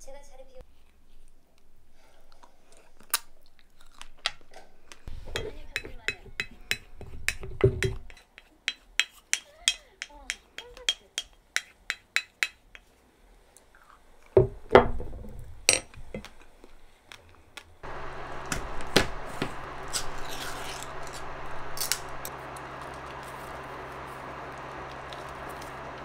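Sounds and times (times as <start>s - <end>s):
wooden spoon tapping ceramic dish: 5.3s - 8.1s
steady low hum: 17.8s - 26.0s.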